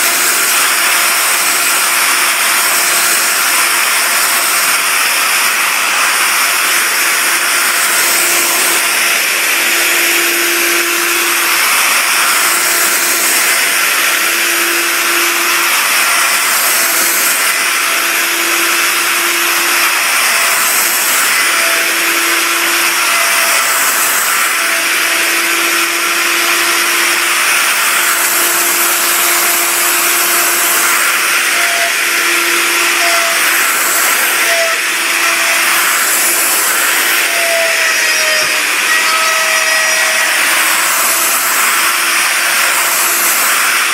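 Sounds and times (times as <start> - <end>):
router cutting wood: 0.0 - 43.9.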